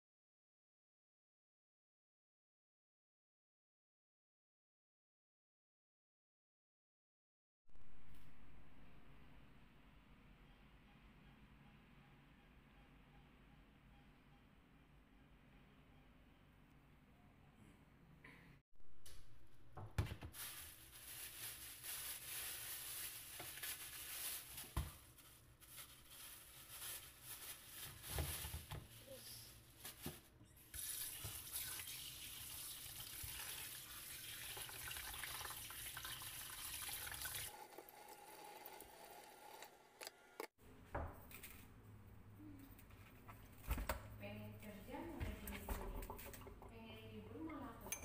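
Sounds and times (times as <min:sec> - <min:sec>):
tap water running into metal sink: 0:30.8 - 0:39.7.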